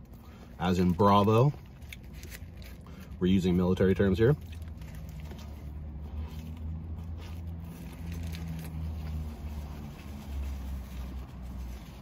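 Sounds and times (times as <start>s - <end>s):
chewing crispy food: 0.0s - 12.0s
low hum inside car: 0.0s - 12.0s.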